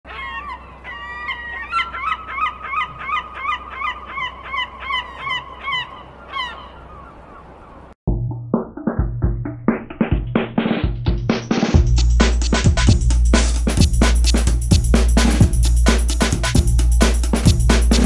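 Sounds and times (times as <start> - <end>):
seagull calling: 0.1 - 8.0.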